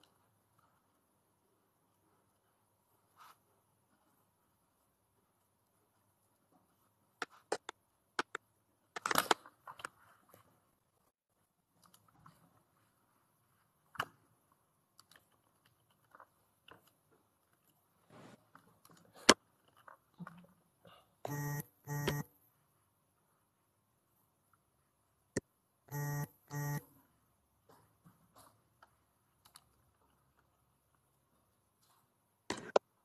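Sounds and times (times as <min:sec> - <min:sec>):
short buzzy beeps: 0:21.2 - 0:22.3, 0:25.9 - 0:26.9.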